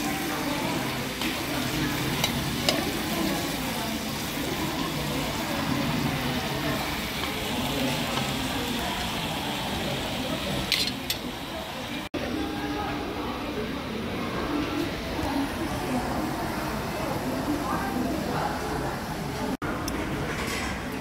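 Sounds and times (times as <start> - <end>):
pork sizzling in a pan: 0.0 - 12.1.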